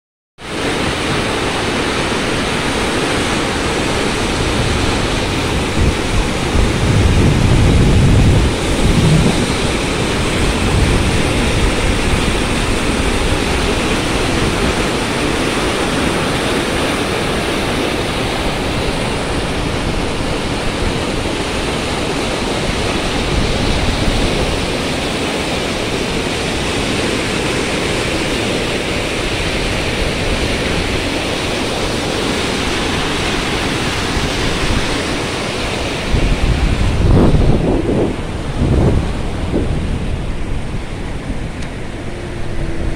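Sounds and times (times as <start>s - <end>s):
water rushing over spillway: 0.4s - 42.9s
low rumble: 36.4s - 42.9s.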